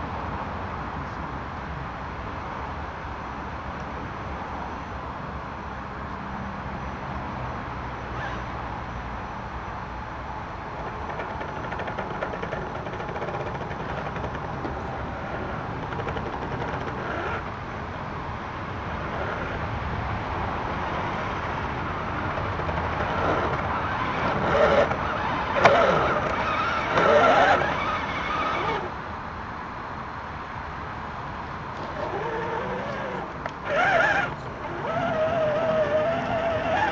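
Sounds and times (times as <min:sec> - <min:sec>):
electric motor whining: 0:10.8 - 0:17.5, 0:22.3 - 0:28.9, 0:31.8 - 0:36.9.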